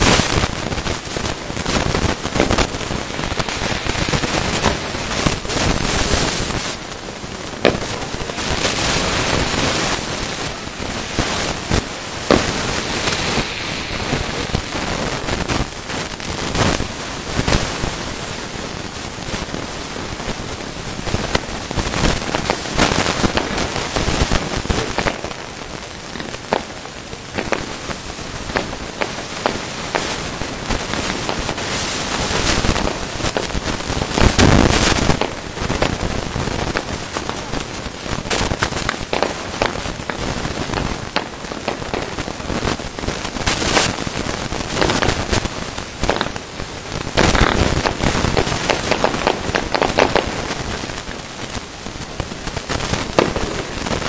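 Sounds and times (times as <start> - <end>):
firework shells bursting: 0.0 - 16.6, 22.3 - 31.6, 32.3 - 36.1, 38.3 - 42.4, 44.8 - 50.8, 52.7 - 54.0
fireworks crackling: 0.0 - 54.0.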